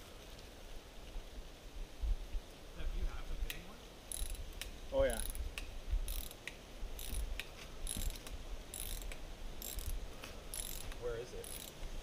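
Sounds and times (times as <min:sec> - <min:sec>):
ratcheting hand tool clicking: 0:04.1 - 0:11.8.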